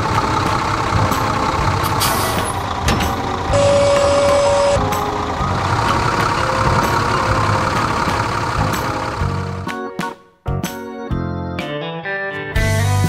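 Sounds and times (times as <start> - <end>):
tractor engine running: 0.0 - 9.8
loud steady beep: 3.5 - 4.8.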